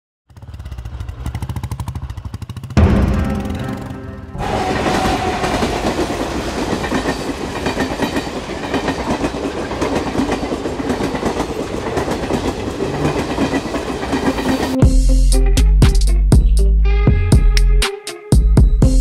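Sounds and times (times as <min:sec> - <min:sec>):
train wheels rumbling on rails: 0:00.3 - 0:14.8.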